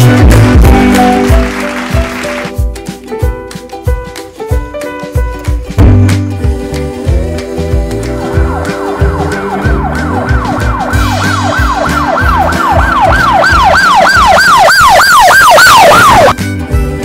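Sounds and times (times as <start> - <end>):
background music: 0.0 - 17.0
toy siren yelping: 9.0 - 16.4.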